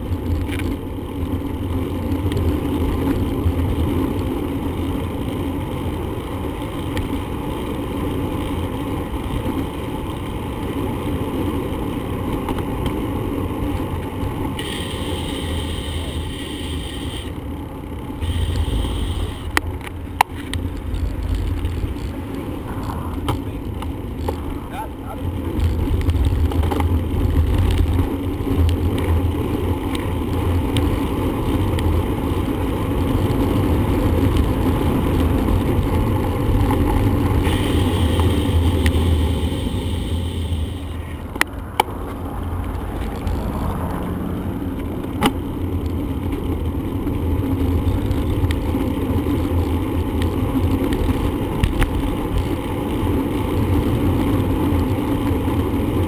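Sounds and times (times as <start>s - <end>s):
road noise: 0.0s - 56.0s
wind rumble on microphone: 20.5s - 56.0s.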